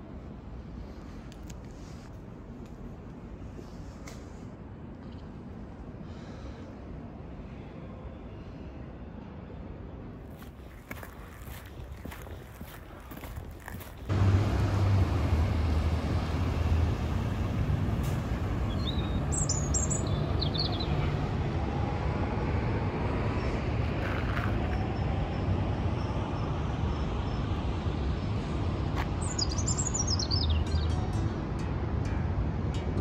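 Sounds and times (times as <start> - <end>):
passing traffic: 0.0 - 33.0
small birds chirping: 18.6 - 21.2.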